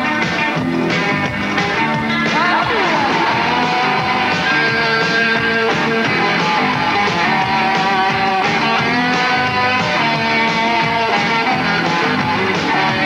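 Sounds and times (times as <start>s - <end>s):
rock music with electric guitar: 0.0s - 13.0s.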